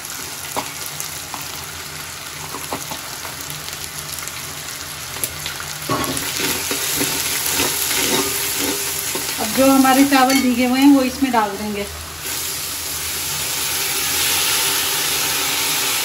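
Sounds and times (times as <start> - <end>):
onions and spices sizzling in oil: 0.0 - 16.0
metal spoon stirring and scraping: 5.9 - 10.6.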